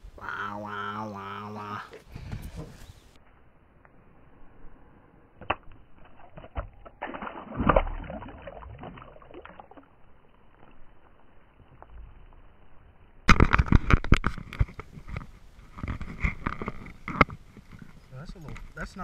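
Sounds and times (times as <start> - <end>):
fish splashing in water: 5.5 - 10.4.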